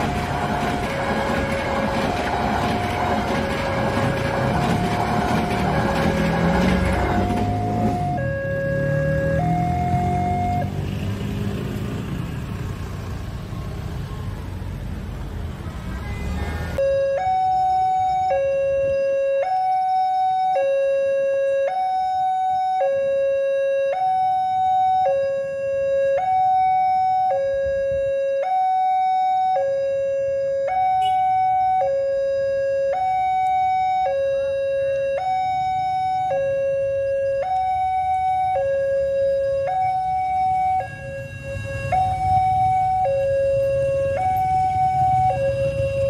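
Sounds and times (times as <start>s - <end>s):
two-tone crossing alarm: 0.0s - 10.8s, 16.8s - 46.0s
road traffic: 0.0s - 46.0s
motorcycles: 4.0s - 16.8s, 39.8s - 46.0s.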